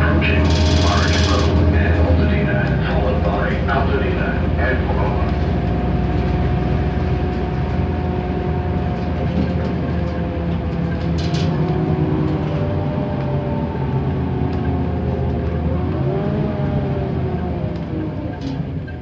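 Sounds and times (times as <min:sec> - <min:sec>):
bus engine and driveline drone: 0:00.0 - 0:19.0
road noise: 0:00.0 - 0:19.0
brief rattle: 0:00.3 - 0:01.7.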